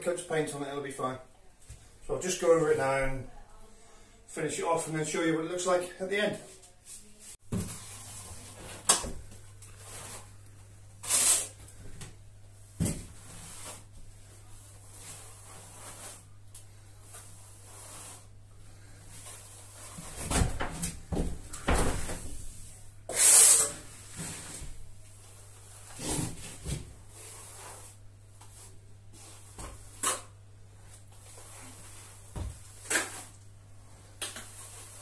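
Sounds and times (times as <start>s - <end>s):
trowel scraping plaster: 23.1s - 24.3s.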